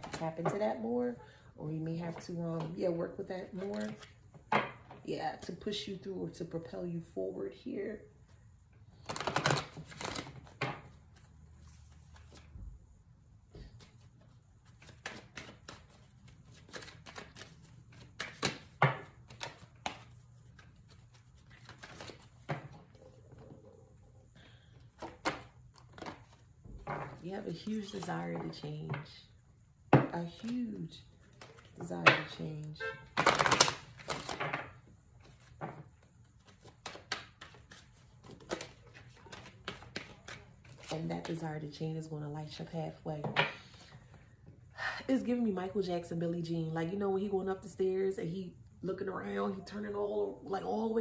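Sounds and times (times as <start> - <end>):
cards being shuffled: 3.5 - 4.2, 9.0 - 12.6, 13.6 - 23.5, 24.9 - 26.4, 30.4 - 31.9, 33.2 - 34.5, 35.2 - 41.4.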